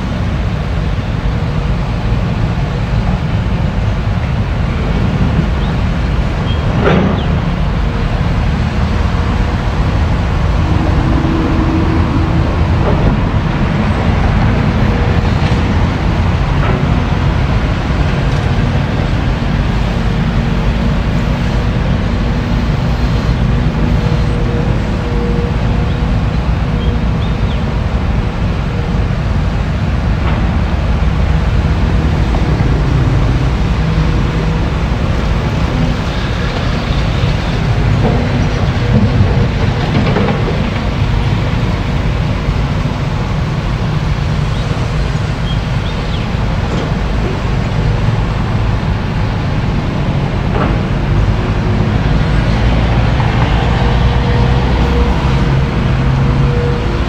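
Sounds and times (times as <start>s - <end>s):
excavator diesel engine rumbling: 0.0s - 57.0s.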